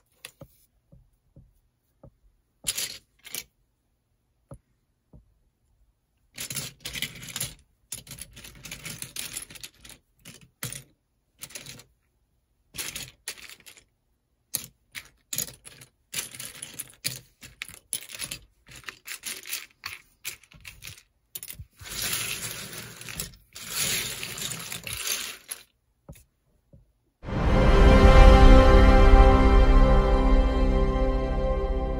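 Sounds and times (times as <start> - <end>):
plastic toy pieces clattering: 2.6 - 3.5, 6.3 - 12.0, 12.7 - 13.9, 14.5 - 26.2.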